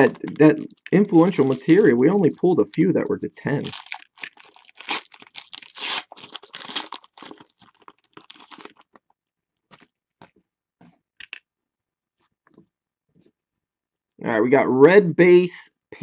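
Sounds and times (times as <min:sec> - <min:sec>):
foil wrapper crinkling: 0:00.0 - 0:09.1.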